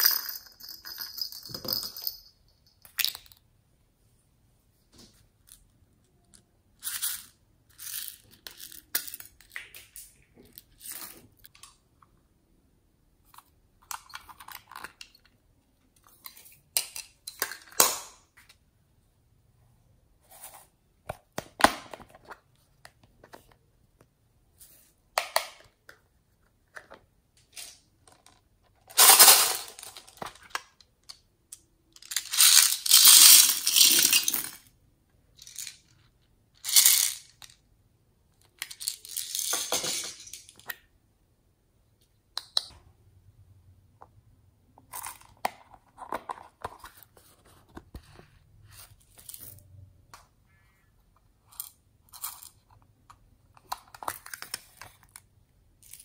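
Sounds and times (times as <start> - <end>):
plastic beads rattling: 28.9 - 31.2, 31.9 - 34.7, 35.4 - 36.0, 36.6 - 37.6, 38.6 - 40.6.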